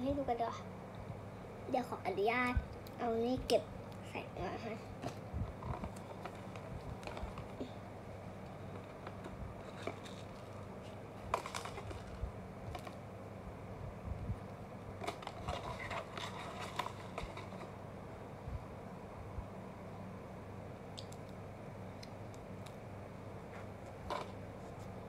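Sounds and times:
faint low hum: 0:00.0 - 0:25.0
cardboard box clicks and rustles: 0:08.6 - 0:13.0, 0:15.0 - 0:17.7.

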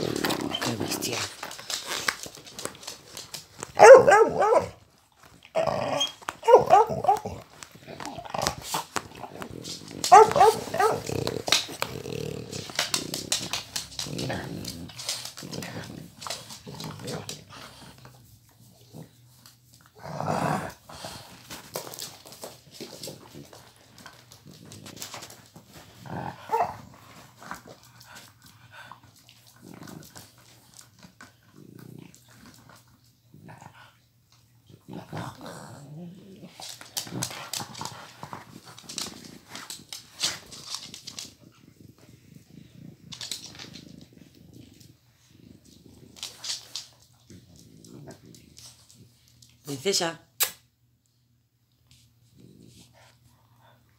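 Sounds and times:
rustling: 0:00.0 - 0:20.0
dogs growling: 0:00.0 - 0:49.5, 0:52.2 - 0:53.9
dogs yipping barks: 0:03.8 - 0:04.7.

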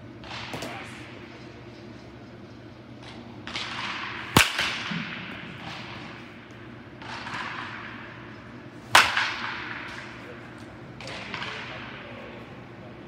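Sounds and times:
baseball bat hitting ball: 0:03.1 - 0:08.2, 0:08.9 - 0:12.2.

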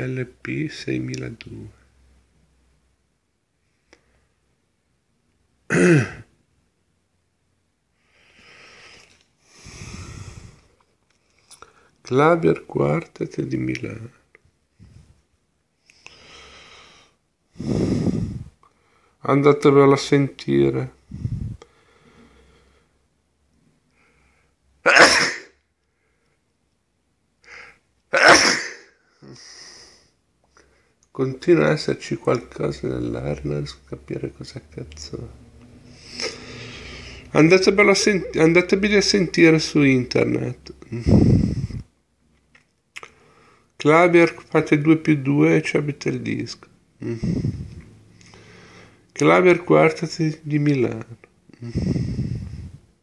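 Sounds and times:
man sneezing: 0:05.7 - 0:06.3, 0:24.8 - 0:25.6, 0:28.1 - 0:29.5
person clearing throat: 0:05.7 - 0:06.3, 0:24.9 - 0:25.6, 0:28.2 - 0:28.9
person breathing out noisily: 0:08.1 - 0:10.8, 0:16.0 - 0:19.2, 0:21.0 - 0:23.0, 0:35.9 - 0:37.3, 0:40.9 - 0:41.9, 0:47.0 - 0:49.0, 0:51.6 - 0:52.9.

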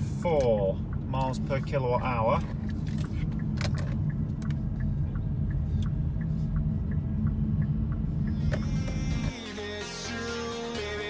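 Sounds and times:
turn signal ticking: 0:00.0 - 0:09.4
music: 0:08.4 - 0:11.0.

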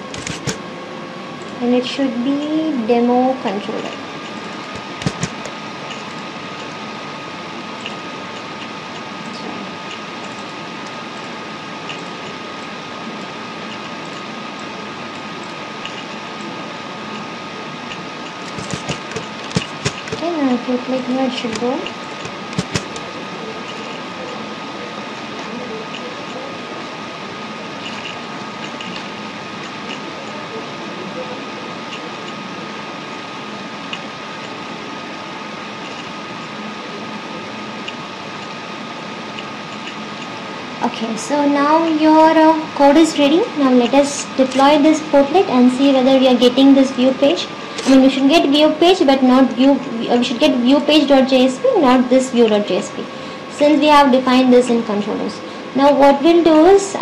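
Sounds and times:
faint high whine: 0:00.0 - 0:57.0
computer mouse clicks: 0:00.1 - 0:00.6, 0:04.7 - 0:06.1, 0:18.5 - 0:20.2, 0:21.5 - 0:23.1.

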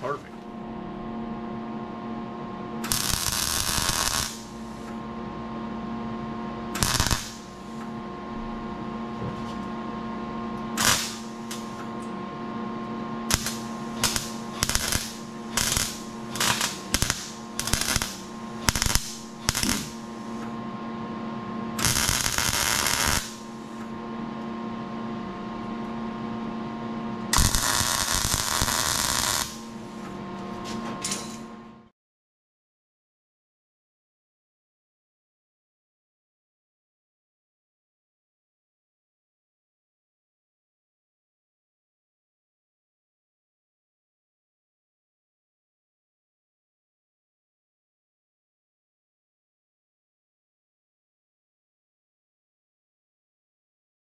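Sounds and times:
steady electrical hum: 0:00.0 - 0:31.8
welder crackling: 0:02.8 - 0:04.9, 0:06.8 - 0:07.8, 0:10.8 - 0:11.8, 0:13.3 - 0:20.4, 0:21.8 - 0:23.8, 0:27.3 - 0:29.9.

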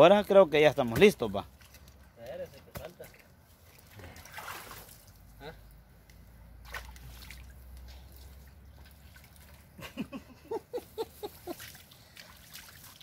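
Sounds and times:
hands splashing in muddy water: 0:02.7 - 0:05.2, 0:06.6 - 0:09.8, 0:11.3 - 0:13.0.

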